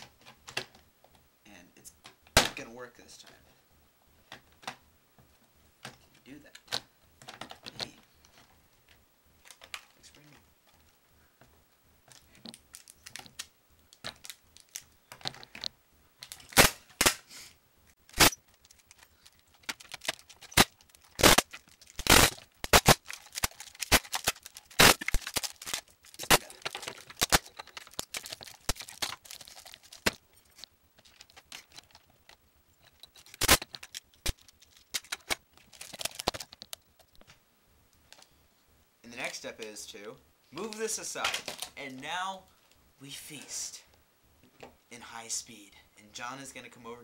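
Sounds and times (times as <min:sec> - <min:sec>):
adhesive tape ripping off roll: 0:16.3 - 0:17.3, 0:18.1 - 0:32.1, 0:33.2 - 0:36.4.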